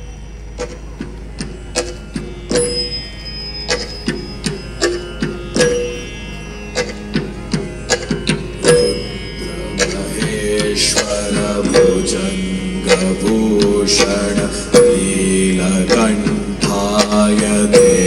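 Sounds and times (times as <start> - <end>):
ringing drum strokes: 0.0 - 18.0
steady drone: 0.0 - 18.0.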